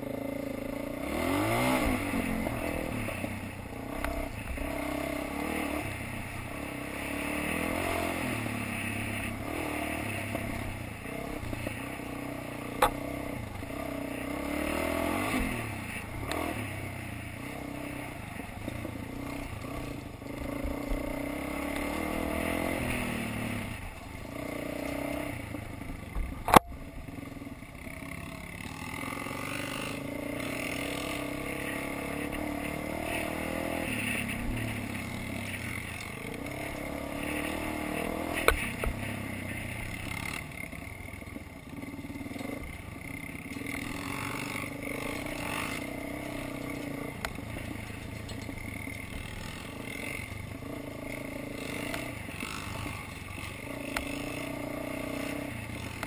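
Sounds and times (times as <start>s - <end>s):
dirt bike engine revving: 0.0s - 56.0s
bike rattling: 0.5s - 56.0s
faint sharp click: 26.4s - 26.7s, 38.4s - 39.0s.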